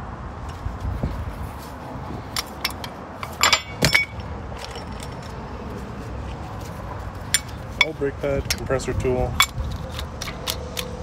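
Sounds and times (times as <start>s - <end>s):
metal tools clinking and rattling: 2.3s - 5.4s, 7.2s - 11.0s.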